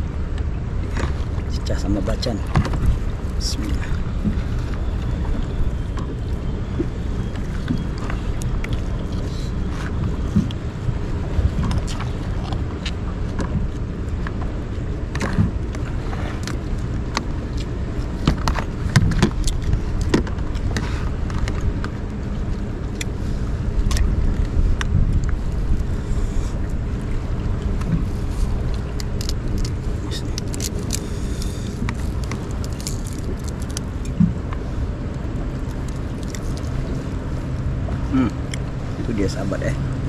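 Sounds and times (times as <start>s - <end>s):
wind and waves rumbling: 0.0s - 40.0s
clicks and knocks of eating: 28.6s - 34.6s.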